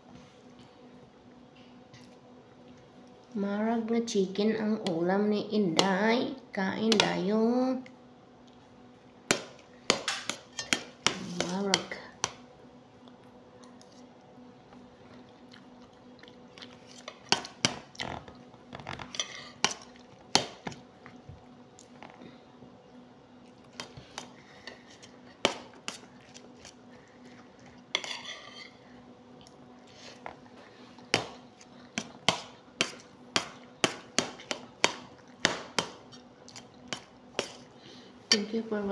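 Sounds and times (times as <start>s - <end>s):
soft chewing: 1.6s - 3.4s, 8.4s - 9.7s, 13.0s - 20.3s, 23.3s - 33.8s, 34.4s - 35.4s, 36.0s - 37.8s
metal spoon scraping a plate: 27.9s - 28.8s.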